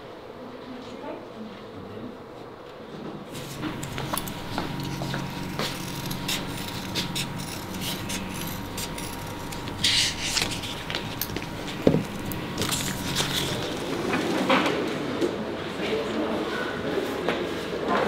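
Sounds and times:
tape rubbing scrapes: 3.3 - 14.0
tape ripping: 3.4 - 13.9.

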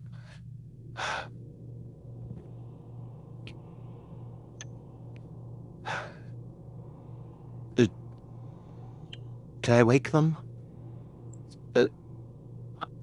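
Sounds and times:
soft breath: 0.0 - 1.4, 5.8 - 9.5
low steady purring: 0.0 - 13.0.

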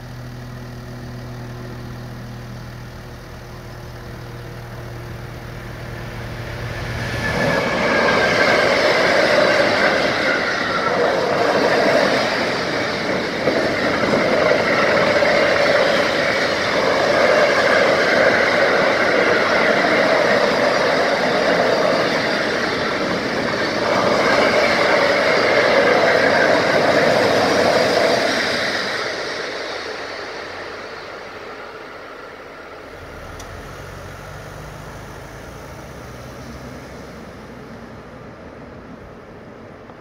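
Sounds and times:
train wheels on rail: 0.0 - 40.0
car engine pulling away: 32.8 - 38.8.

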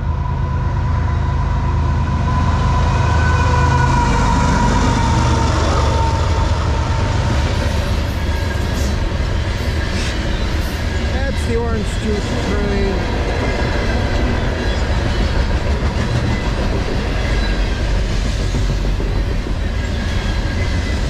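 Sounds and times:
diesel locomotive rumble and whine: 0.0 - 21.0
train wheels clacking on rails: 7.4 - 21.0.

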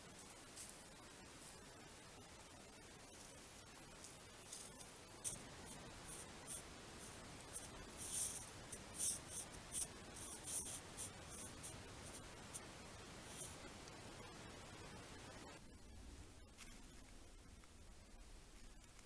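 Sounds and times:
faint steady hiss: 0.0 - 19.0
paws crunching snow: 3.2 - 13.7.

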